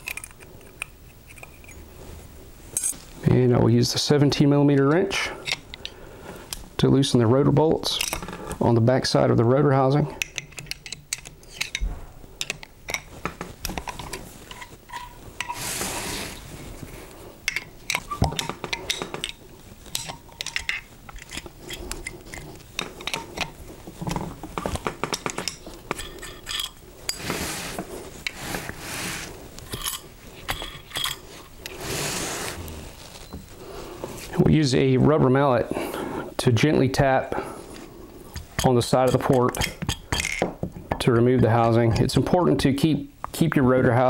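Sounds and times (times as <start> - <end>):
metal rubbing: 10.2 - 34.3
spanner clinking on metal bolts: 17.5 - 23.6, 24.9 - 27.2.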